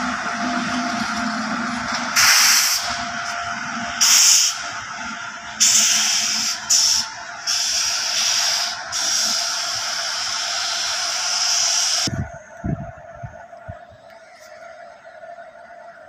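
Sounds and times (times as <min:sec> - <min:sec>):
train brake air hissing: 0:00.0 - 0:03.4, 0:04.0 - 0:04.7, 0:05.6 - 0:12.1.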